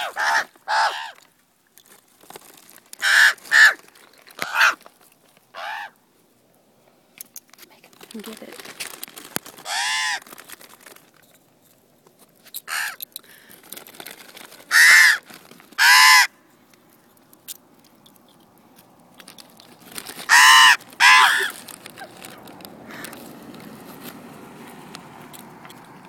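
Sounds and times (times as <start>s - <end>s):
ravens cawing: 0.0s - 1.2s, 3.0s - 3.8s, 4.4s - 4.8s, 5.5s - 6.0s, 9.6s - 10.3s, 12.7s - 13.4s, 14.7s - 16.4s, 20.2s - 21.7s, 22.8s - 23.2s.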